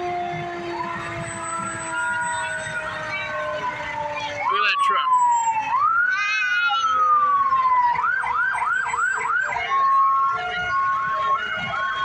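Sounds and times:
electronic siren: 0.0 - 12.0.

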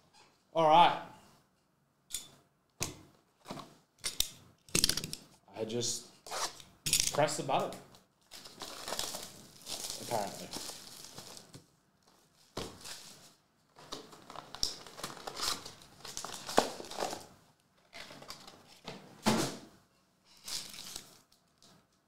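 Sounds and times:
wrapper crinkling and tearing: 8.3 - 11.6, 12.8 - 17.3, 20.3 - 21.6.

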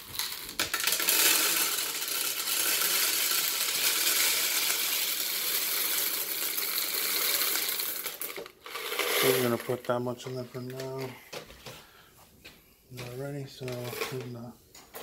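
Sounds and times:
candies rattling into plastic canister: 0.0 - 11.2.

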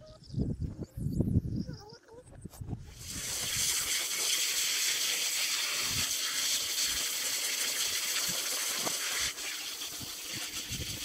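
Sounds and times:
hose spray hissing on tarp: 2.9 - 11.0.

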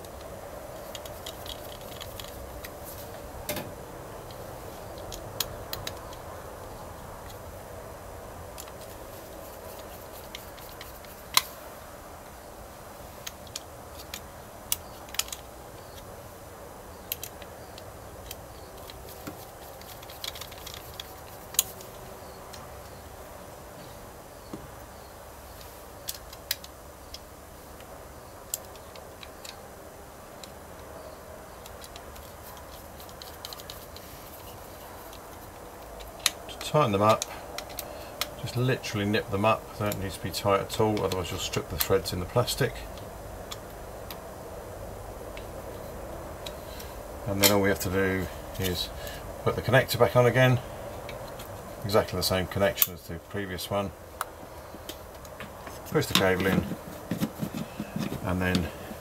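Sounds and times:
screwdriver clicks and ticks: 0.0 - 2.8, 5.0 - 6.2, 13.2 - 16.1, 17.0 - 22.6, 26.0 - 27.3, 31.6 - 36.4, 37.1 - 38.4.

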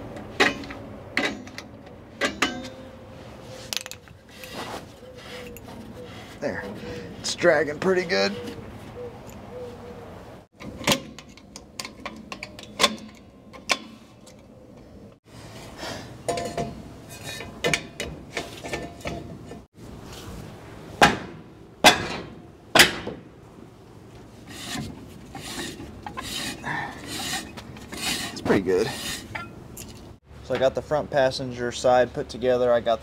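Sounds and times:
brake shoes scraping metal drum: 0.0 - 8.9, 15.3 - 20.2, 24.2 - 30.7
sharp metallic clicks and knocks: 10.6 - 14.4.

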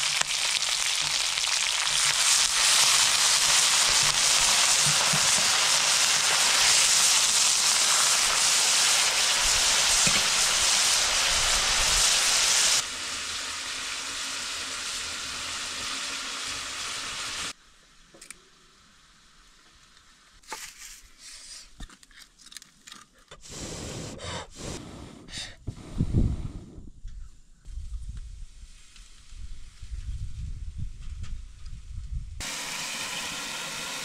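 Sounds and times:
chicken sizzling in a hot pan: 0.0 - 17.6, 32.4 - 34.0.

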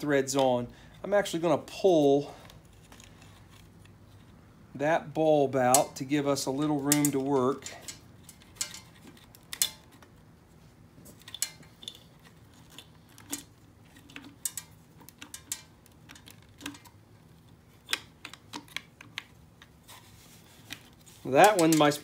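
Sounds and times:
hands clicking and tapping metal: 6.8 - 10.1, 11.2 - 17.0, 20.7 - 22.0.

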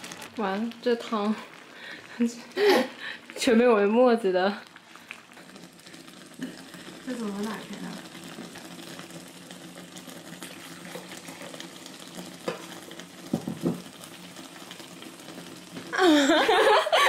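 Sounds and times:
soda fizzing: 0.0 - 17.0
glass knocks: 13.3 - 13.8
woman laughing and talking: 16.0 - 17.0.

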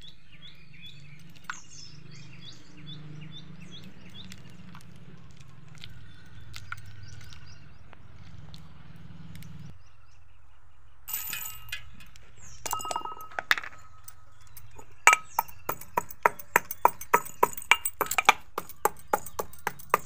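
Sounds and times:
seeds clinking into metal mortar: 11.1 - 20.0
metal pestle pounding: 14.6 - 20.0.

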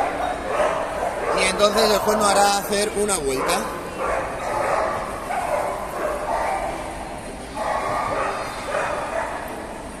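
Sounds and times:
dogs barking: 0.0 - 2.4, 3.3 - 9.8
background din of hall: 0.0 - 10.0.

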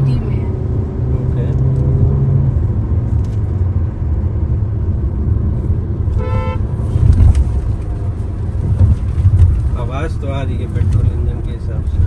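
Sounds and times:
car engine drone inside cabin: 0.0 - 12.0
road noise: 0.0 - 12.0
vehicle horn toot: 6.1 - 6.7.

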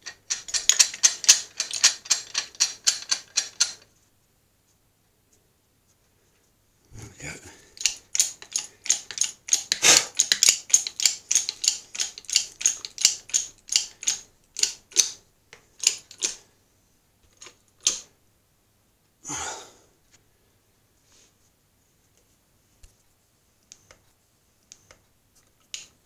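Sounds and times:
bottle jack rapid metallic clicking: 0.0 - 3.8, 7.8 - 15.2.

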